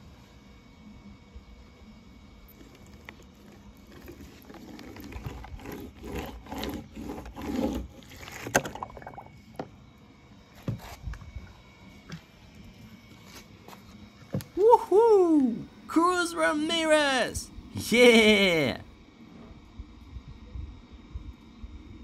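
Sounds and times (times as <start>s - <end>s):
toy car wheels rolling through paint: 2.5s - 9.3s.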